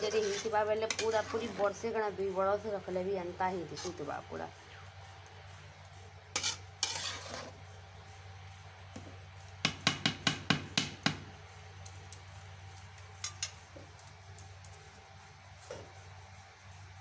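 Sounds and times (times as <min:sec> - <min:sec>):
metal spoon stirring in pot: 0:00.0 - 0:02.0, 0:03.6 - 0:04.1, 0:06.3 - 0:07.6, 0:13.2 - 0:13.6
spoon knocking on pot: 0:09.6 - 0:11.2.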